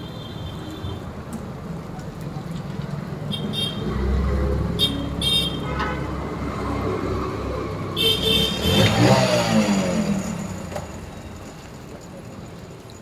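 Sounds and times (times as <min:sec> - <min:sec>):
vehicle engines running: 0:01.2 - 0:13.0
engine passing with pitch sweep: 0:06.2 - 0:11.4.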